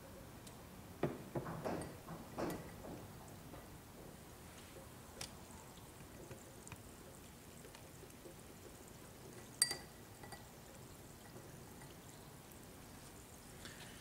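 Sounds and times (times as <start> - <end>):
glass clink: 1.7 - 2.8, 9.4 - 10.6.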